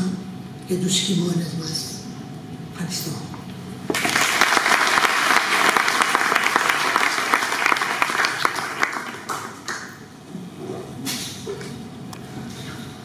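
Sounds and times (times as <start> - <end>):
audience applauding: 3.9 - 10.0.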